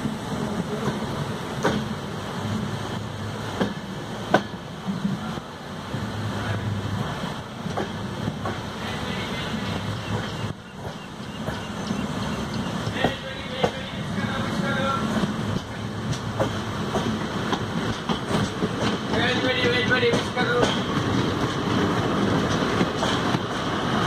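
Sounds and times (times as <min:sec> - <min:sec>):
train running gear rumble: 0:00.0 - 0:24.0
wheels clicking over rail joints: 0:10.1 - 0:24.0.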